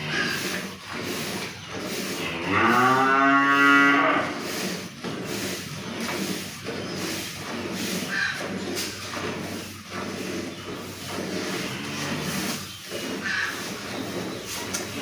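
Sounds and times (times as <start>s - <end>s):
cow mooing: 2.2s - 4.4s, 11.6s - 12.5s.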